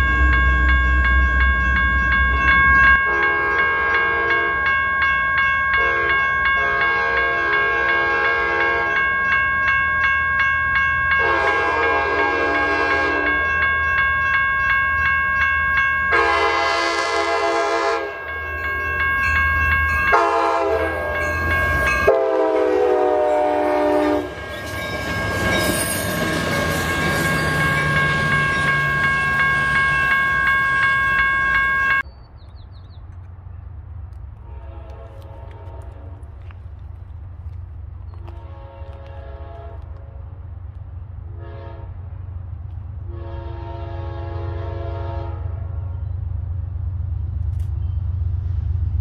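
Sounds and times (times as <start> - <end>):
rumble of passing train: 0.0 - 49.0
train horn blasts: 3.0 - 4.7, 5.7 - 9.0, 11.1 - 13.6, 16.1 - 18.8, 20.1 - 24.8, 34.4 - 36.3, 38.2 - 40.2, 41.3 - 42.0, 43.1 - 45.8.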